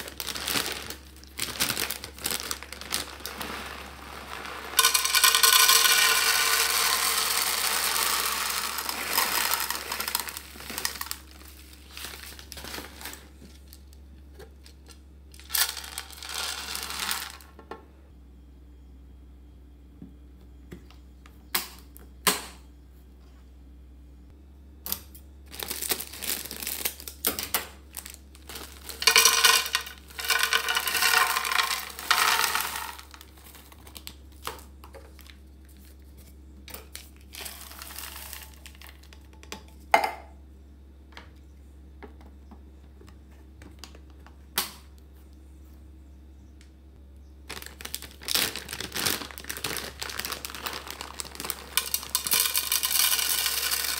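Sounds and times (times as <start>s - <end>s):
dry pet food pouring: 0.0s - 13.3s, 15.4s - 17.5s, 28.0s - 33.7s, 37.2s - 39.1s, 47.6s - 53.9s
foil bag crinkling: 0.0s - 17.5s, 25.4s - 39.2s, 47.4s - 53.9s.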